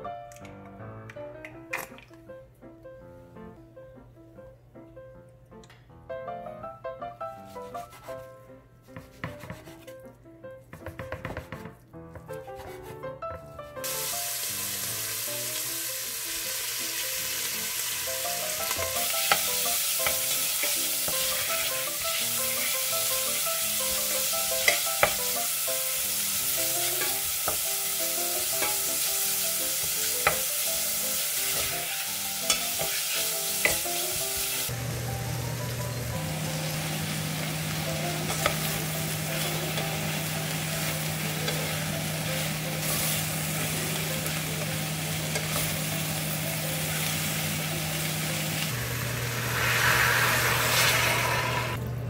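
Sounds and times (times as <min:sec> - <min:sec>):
knife cutting on wooden board: 0:08.9 - 0:09.9, 0:10.8 - 0:13.0
beef sizzling in oil: 0:13.8 - 0:51.8.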